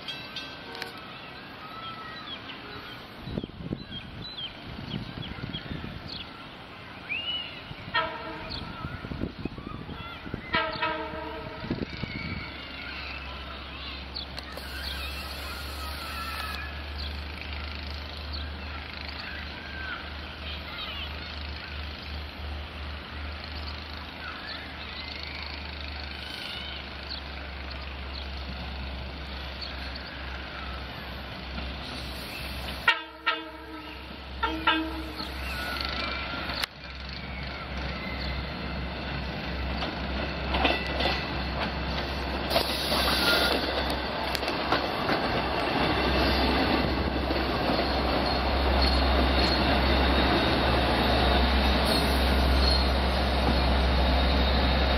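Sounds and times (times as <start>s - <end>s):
diesel train rumble: 0.0s - 54.9s
train air horn blasts: 10.5s - 11.8s, 32.8s - 35.4s.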